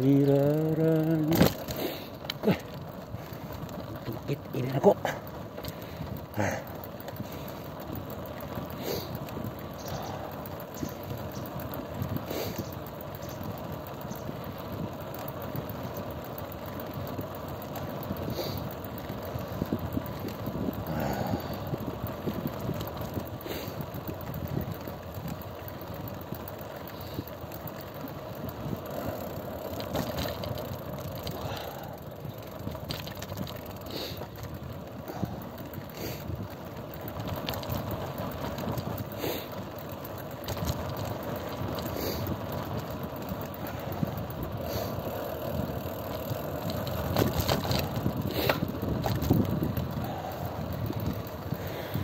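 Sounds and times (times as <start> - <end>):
clicks and rattles: 0.0 - 16.0, 24.1 - 44.2, 45.6 - 52.0
bicycle road rumble: 0.0 - 52.0
wind buffeting microphone: 18.0 - 33.8, 34.5 - 52.0.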